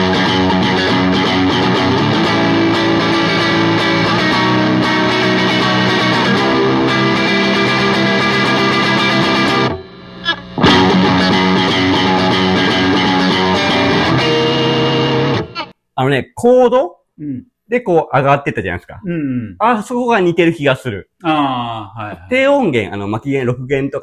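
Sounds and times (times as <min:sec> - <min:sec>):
electric guitar rock riff: 0:00.0 - 0:15.7.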